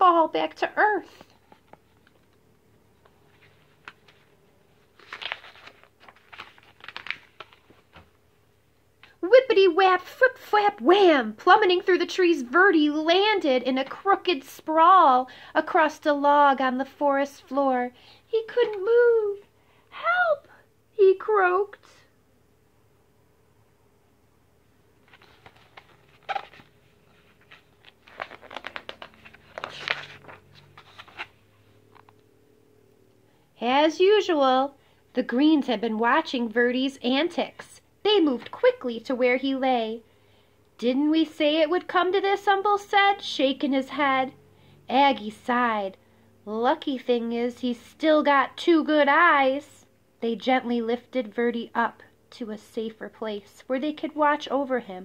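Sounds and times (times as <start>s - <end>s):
paper page rustling: 1.1s - 8.2s, 25.0s - 31.5s.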